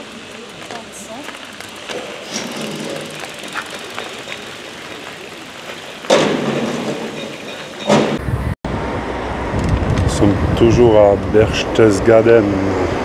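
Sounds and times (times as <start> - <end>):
road traffic: 0.0 - 13.0
steady low rumble: 8.2 - 13.0.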